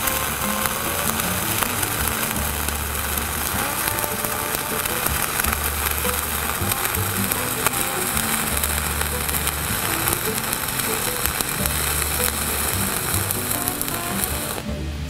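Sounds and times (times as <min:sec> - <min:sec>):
welding arc crackling sizzle: 0:00.0 - 0:14.7
background music with bass line: 0:00.0 - 0:15.0.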